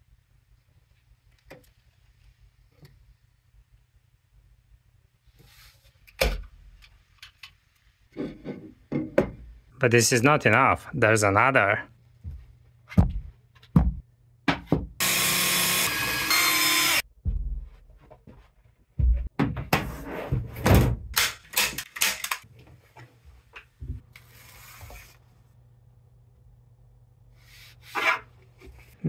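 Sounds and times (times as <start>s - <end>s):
power tool running: 15.0s - 17.0s.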